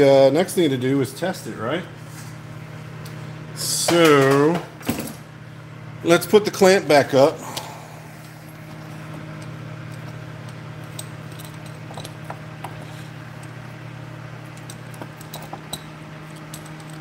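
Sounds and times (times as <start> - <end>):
steady low hum: 0.0 - 17.0
metal clamp lamp clicking and rattling: 9.4 - 13.6, 14.5 - 17.0.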